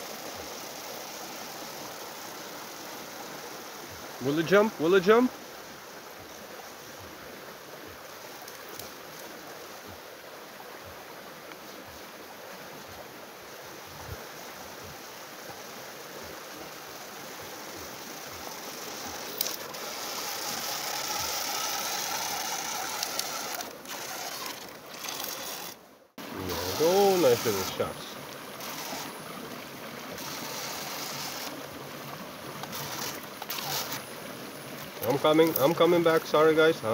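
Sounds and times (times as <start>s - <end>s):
river water rushing: 0.0s - 36.9s
toy boat motor whine: 17.6s - 29.3s, 30.1s - 31.6s, 32.6s - 34.1s.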